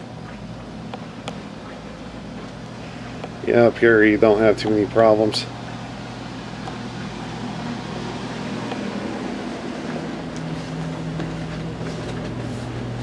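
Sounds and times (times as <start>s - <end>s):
mechanical hum and whir: 0.0s - 13.0s
footsteps on metal staircase: 9.8s - 13.0s.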